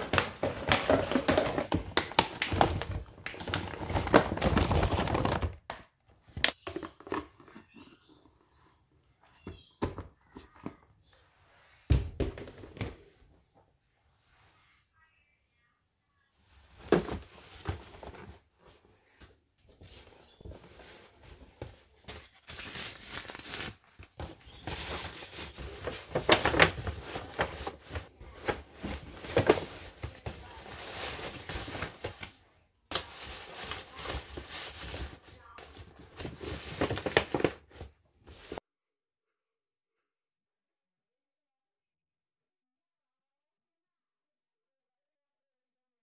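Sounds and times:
paper bags rustling: 0.0 - 5.6, 20.4 - 38.6.

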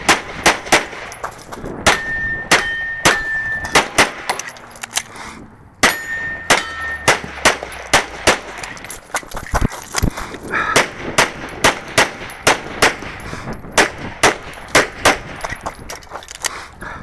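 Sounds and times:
pistol shots: 0.0 - 1.2, 1.8 - 4.5, 5.8 - 8.8, 10.7 - 15.6
steel target ringing: 1.8 - 4.0, 5.8 - 8.2.

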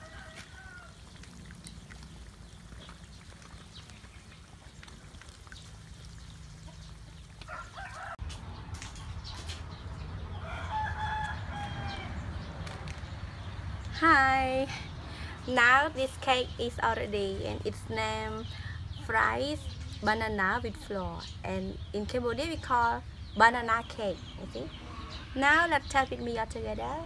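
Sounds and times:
rooster crowing: 0.0 - 1.0, 7.4 - 8.2, 10.3 - 12.4
faint sizzle of deep-frying: 0.0 - 8.2.

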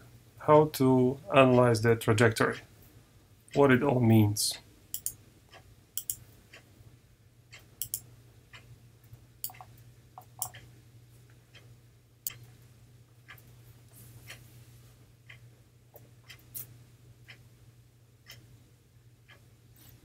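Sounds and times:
low steady hum: 0.0 - 20.0
computer mouse clicking: 4.9 - 5.2, 6.0 - 6.2, 7.8 - 8.0, 9.4 - 10.6.

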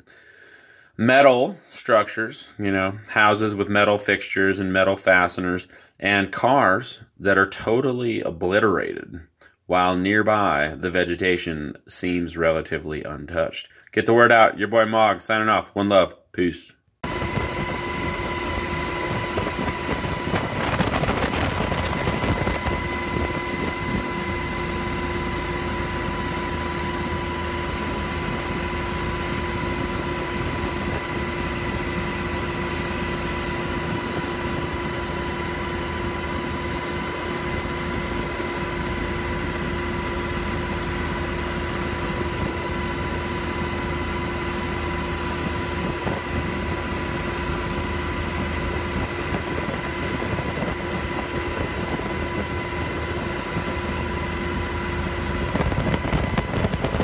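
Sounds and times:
helicopter engine and rotor: 17.0 - 57.0
high-pitched whine: 17.0 - 57.0.

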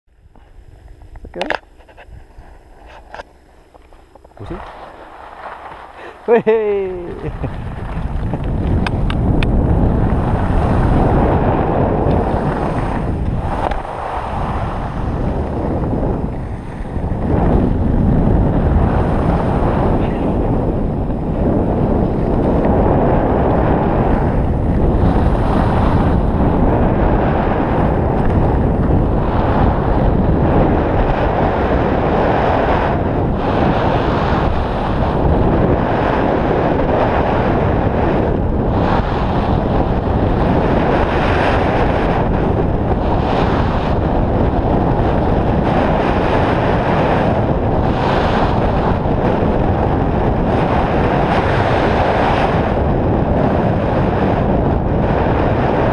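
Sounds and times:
wind roaring over microphone: 0.1 - 55.9
skis scraping on packed snow: 1.8 - 8.8, 9.8 - 24.2.

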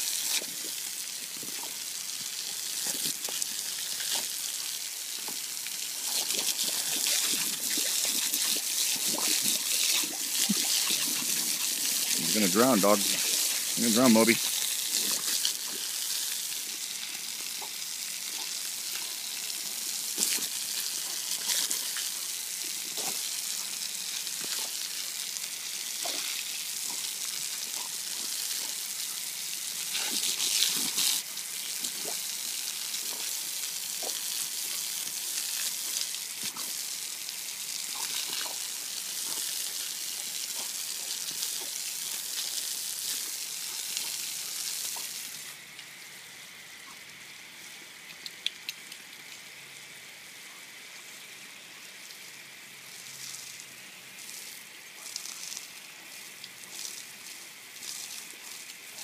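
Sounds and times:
hose spraying water on concrete: 0.0 - 59.0
water splashes: 5.6 - 19.4.

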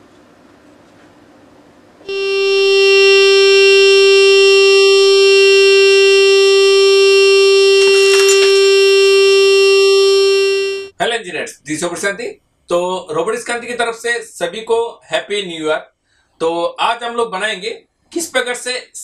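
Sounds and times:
loudspeaker buzzing tone: 2.1 - 10.9.

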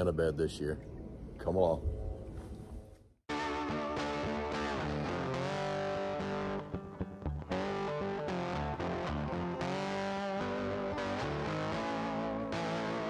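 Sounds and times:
distorted electric guitar music: 3.3 - 13.0.

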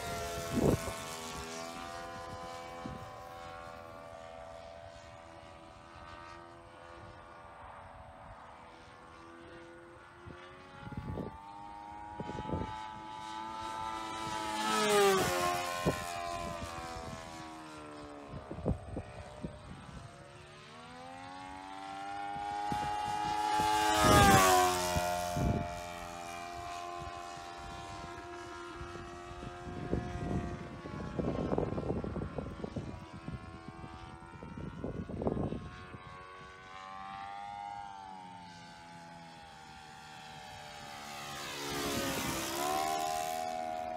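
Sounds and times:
model airplane engine droning: 0.0 - 43.9.

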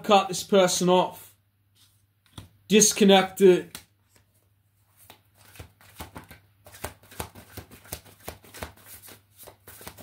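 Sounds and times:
cards being shuffled: 3.6 - 10.0.

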